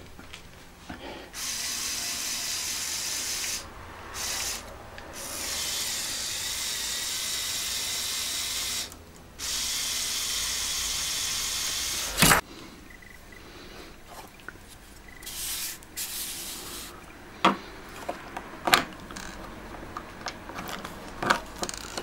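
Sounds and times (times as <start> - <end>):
small motor and gears whirring: 1.3 - 12.4, 19.0 - 22.0.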